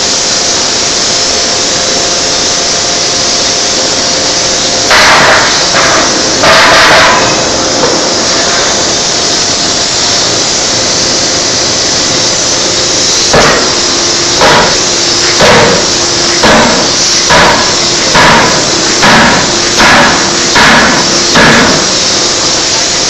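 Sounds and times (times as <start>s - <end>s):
loud machine hiss: 0.0s - 23.0s
forging hammer blows: 4.9s - 10.4s, 13.2s - 23.0s.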